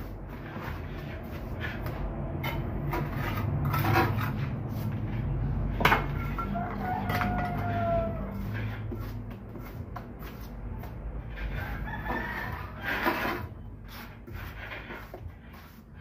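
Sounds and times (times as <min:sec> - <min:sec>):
trowel scraping mortar: 0:00.0 - 0:16.0
rooster crowing: 0:06.3 - 0:08.8, 0:11.4 - 0:13.2.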